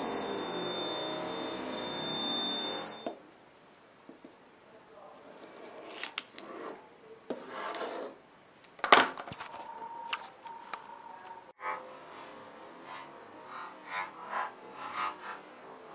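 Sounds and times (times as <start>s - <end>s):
pencil scratching on paper: 5.2s - 8.2s, 12.8s - 15.6s.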